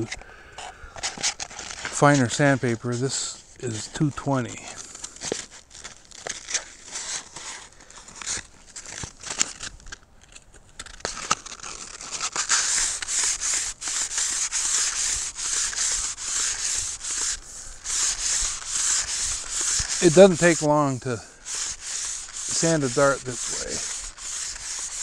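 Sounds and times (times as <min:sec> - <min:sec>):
sandpaper rasping on cane: 0:01.0 - 0:03.9, 0:11.2 - 0:25.0
sandpaper crinkling: 0:01.0 - 0:25.0.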